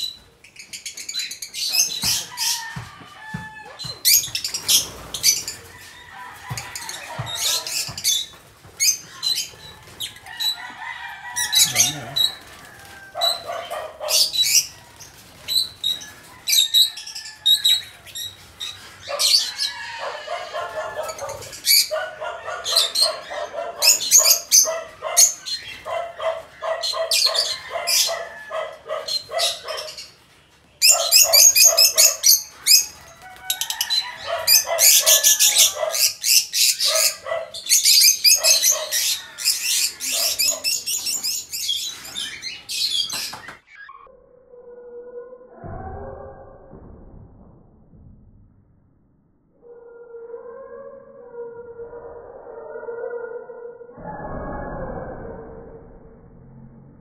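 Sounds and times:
flock of birds chattering: 0:00.0 - 0:43.6.

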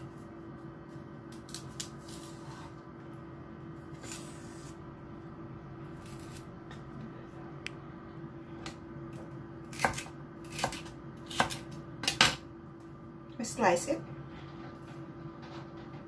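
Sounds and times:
knife chopping celery on board: 0:09.7 - 0:12.4.

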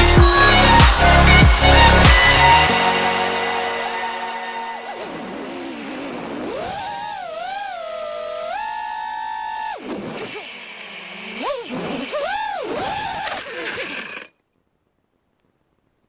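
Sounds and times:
quadcopter motors whining: 0:04.9 - 0:14.4.

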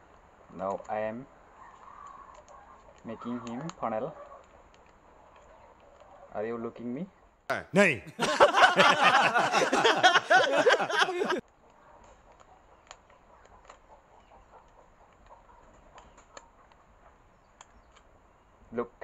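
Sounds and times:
wavering voice-like sounds: 0:07.5 - 0:08.4.

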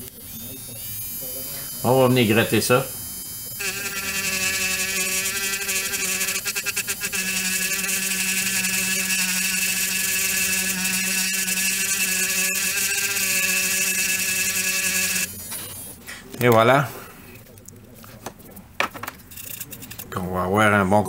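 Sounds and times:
rotary tool whining: 0:00.0 - 0:16.0.

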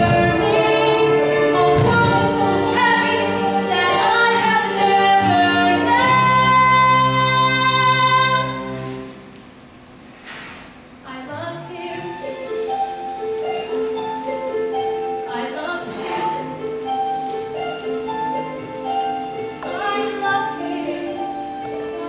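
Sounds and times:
woman singing a ballad: 0:00.0 - 0:08.6, 0:15.2 - 0:16.7, 0:19.6 - 0:22.0
musical accompaniment: 0:00.0 - 0:09.6, 0:11.4 - 0:22.0.

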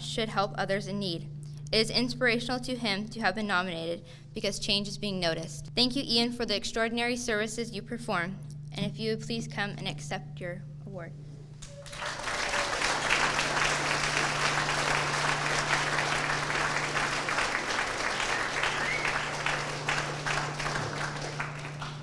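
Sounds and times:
audience applauding: 0:11.6 - 0:22.0.

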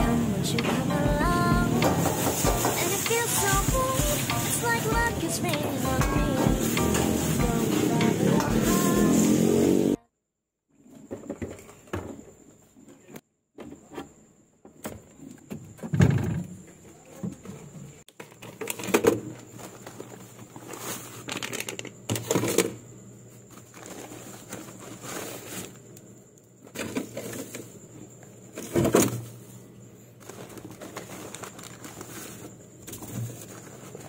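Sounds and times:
steady low hum: 0:00.0 - 0:09.6
plastic packs rustling: 0:01.7 - 0:08.9, 0:18.3 - 0:22.6, 0:23.5 - 0:25.8, 0:30.1 - 0:34.0.

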